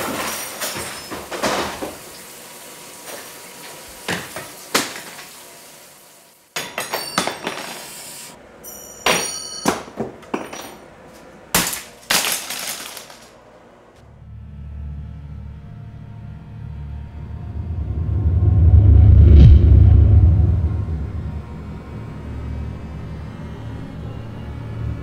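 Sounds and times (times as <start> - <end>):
glassy clinks: 8.6 - 9.8.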